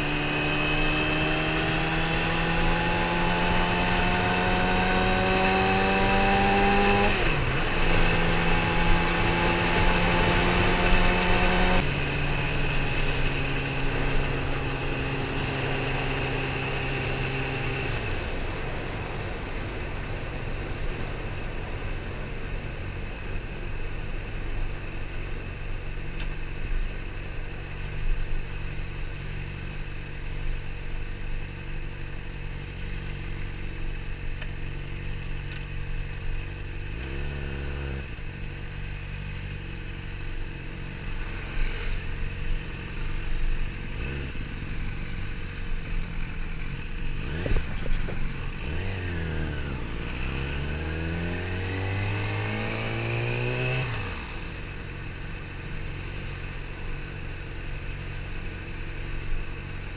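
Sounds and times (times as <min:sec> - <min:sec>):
motorcycle engine at low speed: 0:00.0 - 0:59.9
engine revs climbing: 0:47.1 - 0:54.5.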